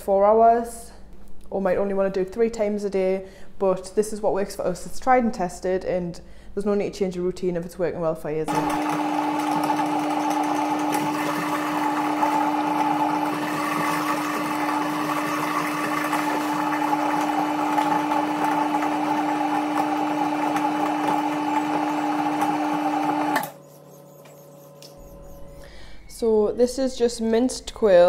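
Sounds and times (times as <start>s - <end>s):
electric meat mincer humming: 8.5s - 25.7s.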